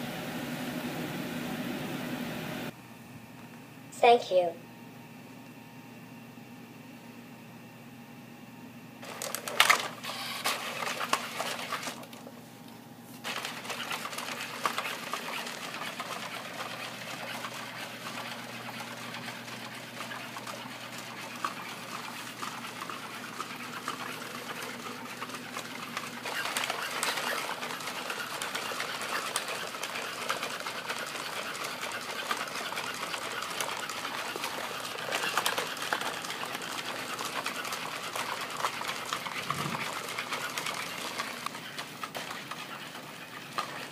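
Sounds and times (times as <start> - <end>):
robot servo motors whirring: 9.5 - 12.0, 20.0 - 41.6
small ticks and clatter: 13.2 - 43.9.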